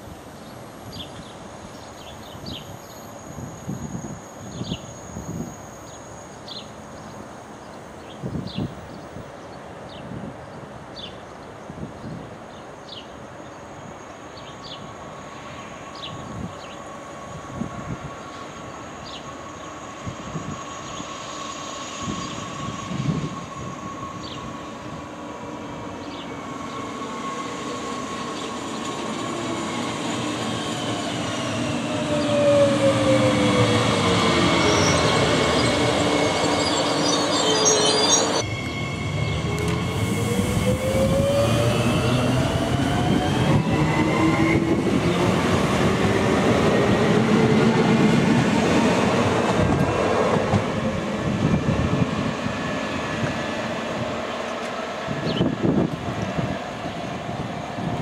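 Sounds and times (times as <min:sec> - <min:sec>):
rail noise: 0:00.0 - 0:58.0
high squealing brakes: 0:02.0 - 0:08.8, 0:14.6 - 0:48.1
electric train motors whining: 0:31.8 - 0:46.0.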